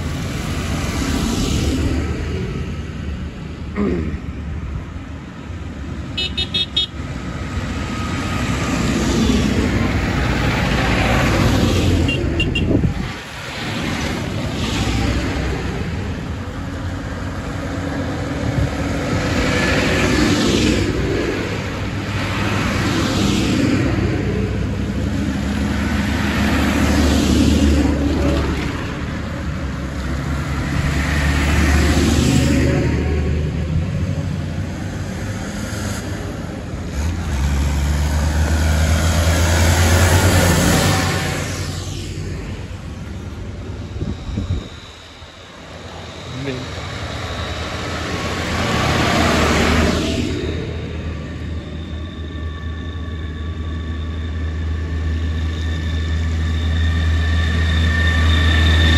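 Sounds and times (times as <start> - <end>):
vehicle engines running: 0.0 - 58.9
tyres hissing on wet road: 12.9 - 43.8.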